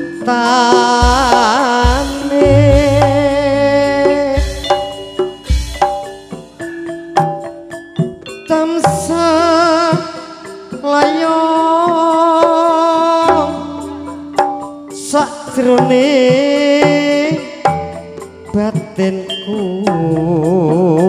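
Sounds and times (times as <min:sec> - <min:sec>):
person singing long notes: 0:00.7 - 0:04.6
hand drum strokes: 0:01.0 - 0:06.6
gamelan tones: 0:02.1 - 0:21.0.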